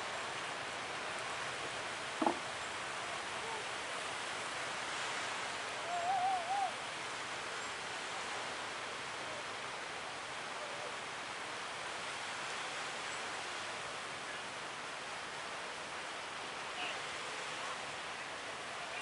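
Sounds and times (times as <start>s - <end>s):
waves breaking on beach: 0.0s - 19.0s
warbling call: 5.8s - 6.8s.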